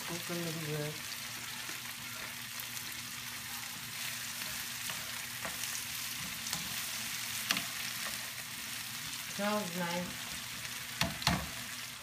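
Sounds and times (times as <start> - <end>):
vegetables sizzling in a frying pan: 0.0 - 12.0
spoon tapping a pan: 11.0 - 11.6.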